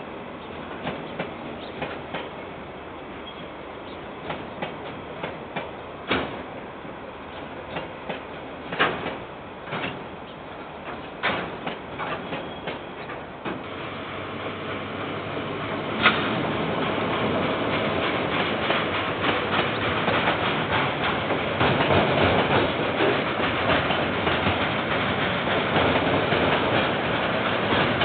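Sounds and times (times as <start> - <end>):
train approaching rumble: 0.0 - 28.0
freight wagons rolling on rails: 7.3 - 28.0
wagons clanking: 10.8 - 28.0.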